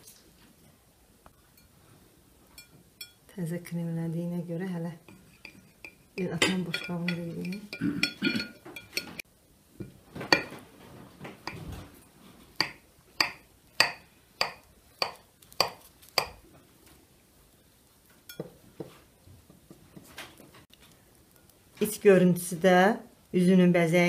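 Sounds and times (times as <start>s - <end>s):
knife clinking on glass: 5.3s - 9.2s.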